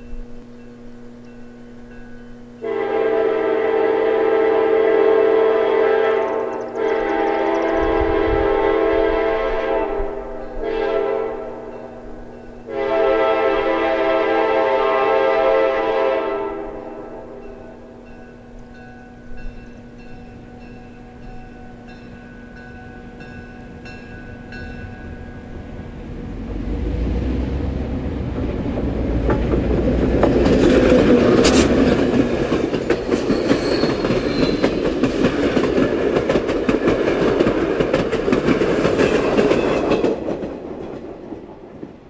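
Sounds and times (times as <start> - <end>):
train bell ringing: 0.0 - 2.7, 11.6 - 12.8, 17.3 - 25.7, 32.7 - 35.1
train passing: 0.0 - 42.0
wheels clicking over rail joints: 28.2 - 42.0.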